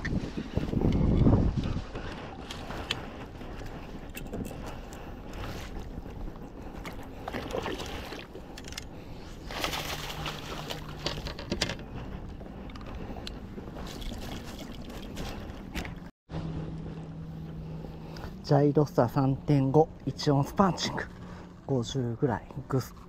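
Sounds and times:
water splashing: 13.8s - 15.8s.

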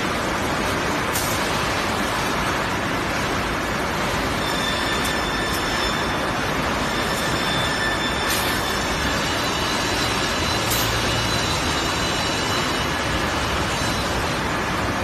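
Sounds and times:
faint high whining tones: 4.2s - 14.5s.

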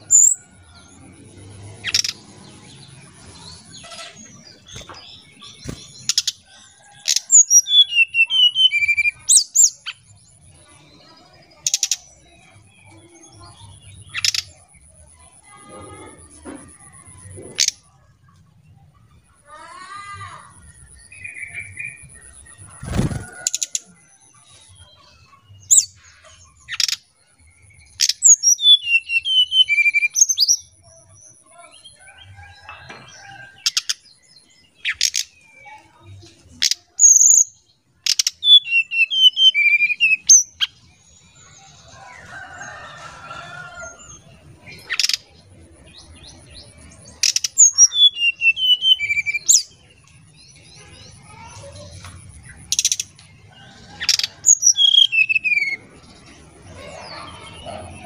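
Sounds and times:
bird singing whistled notes: 7.5s - 10.3s, 27.7s - 30.8s, 38.2s - 40.8s, 47.3s - 49.8s, 54.2s - 55.8s.

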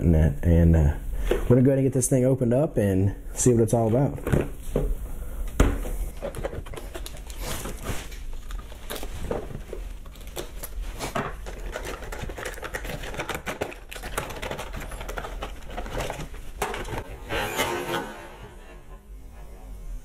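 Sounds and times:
plastic packaging crinkling: 6.2s - 17.0s.

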